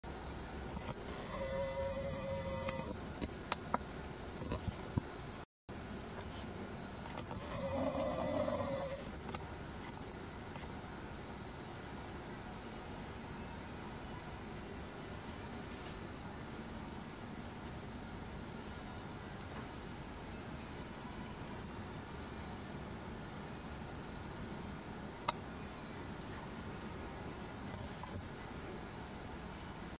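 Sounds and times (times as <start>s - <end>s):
insect trill: 0.1s - 30.0s.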